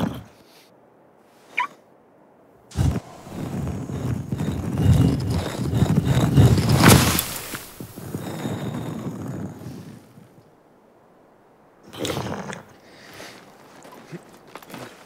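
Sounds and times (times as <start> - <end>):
stone scraping: 2.7 - 9.7
stone grinding and rumbling: 2.7 - 10.2
sharp crack: 6.4 - 8.0.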